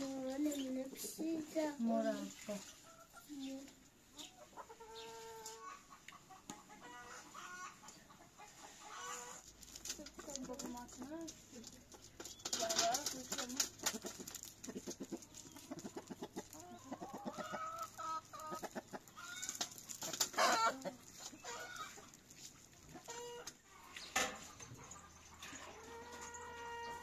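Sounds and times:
chickens clucking: 0:00.0 - 0:27.0
chicken squawk: 0:04.5 - 0:09.4, 0:25.7 - 0:27.0.

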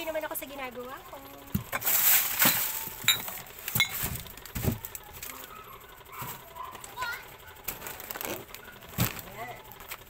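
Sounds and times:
plastic packaging rustling: 0:01.6 - 0:05.6, 0:07.6 - 0:10.0.

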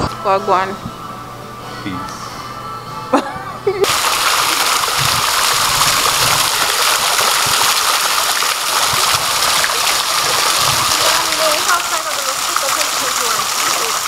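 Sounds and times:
fountain water splashing over rocks: 0:03.8 - 0:14.0.

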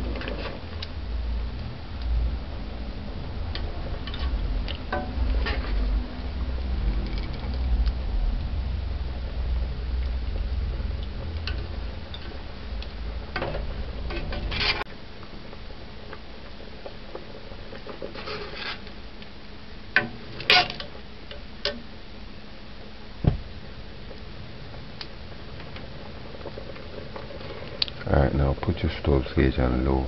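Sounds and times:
low rumble: 0:00.0 - 0:16.6
ladle scraping and clinking pot: 0:04.0 - 0:05.8.

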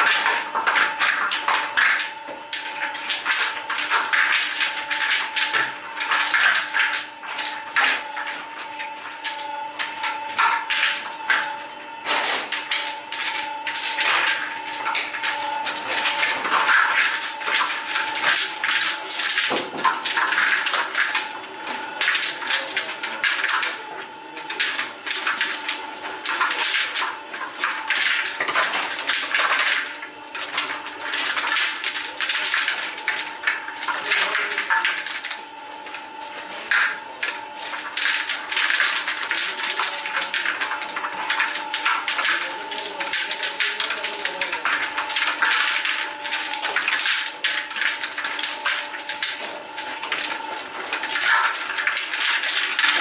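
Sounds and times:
clattering and scraping work sounds: 0:00.0 - 0:53.0.

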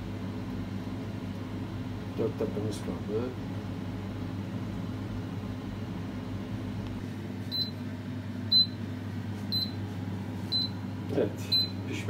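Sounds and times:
fan humming: 0:00.0 - 0:12.0
air fryer alarm beeps: 0:07.5 - 0:08.9, 0:09.5 - 0:09.8, 0:10.5 - 0:11.9.

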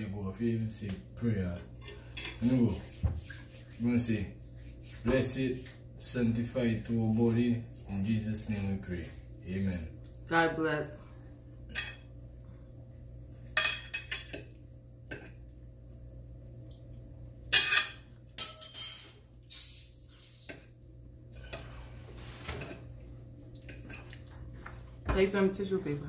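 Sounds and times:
forks clinking on plates: 0:17.5 - 0:19.2.

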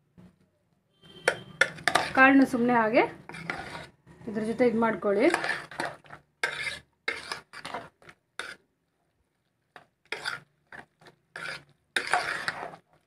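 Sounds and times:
metal spoon scraping pressure cooker: 0:01.1 - 0:07.8, 0:11.3 - 0:12.8.

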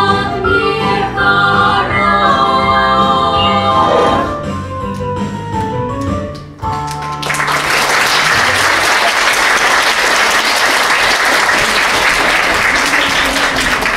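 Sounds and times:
audience applause: 0:06.7 - 0:13.9.

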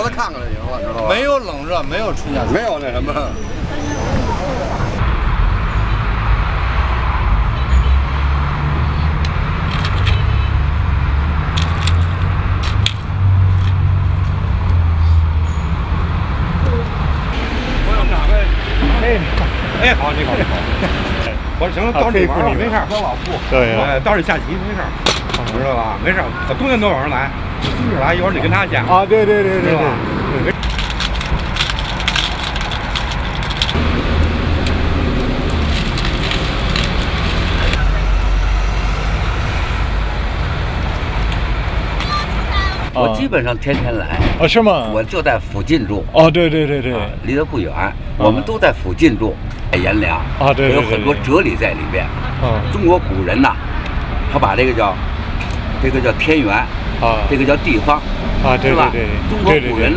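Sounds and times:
low traffic rumble: 0:00.0 - 0:59.9
game stones clicking on wooden board: 0:30.6 - 0:33.8.

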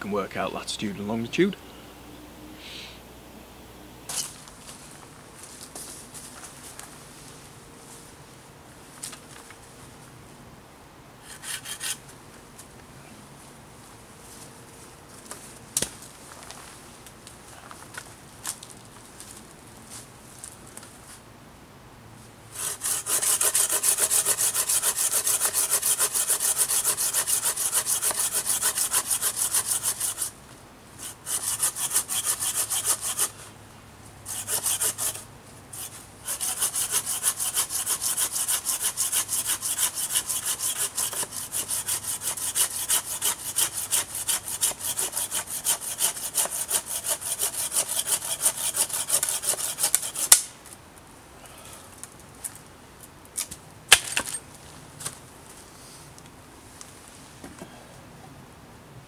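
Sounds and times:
hand saw cutting wood: 0:11.2 - 0:12.0, 0:22.5 - 0:30.4, 0:31.0 - 0:33.4, 0:34.3 - 0:35.2, 0:35.8 - 0:50.5.

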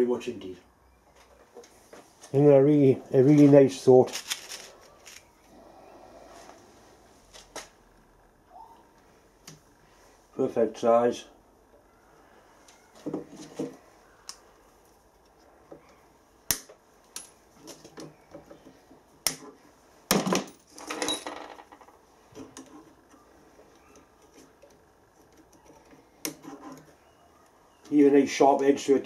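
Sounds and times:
handling rustle: 0:03.2 - 0:05.4.

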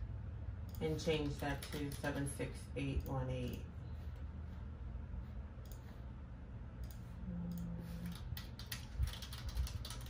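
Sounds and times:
keyboard keys clicking: 0:08.0 - 0:10.0.

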